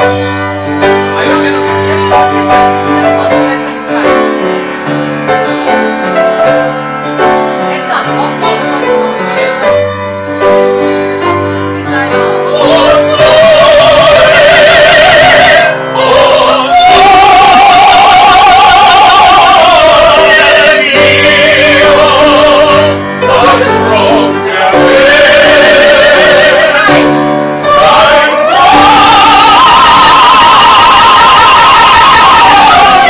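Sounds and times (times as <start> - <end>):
upright piano playing: 0.0 - 33.0
singers with strong vibrato: 12.3 - 33.0.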